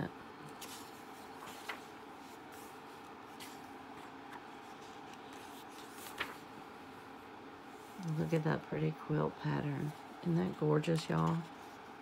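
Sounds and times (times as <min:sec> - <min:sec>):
low room hum: 0:00.0 - 0:12.0
paper pages rustling: 0:00.4 - 0:06.6, 0:09.8 - 0:11.9.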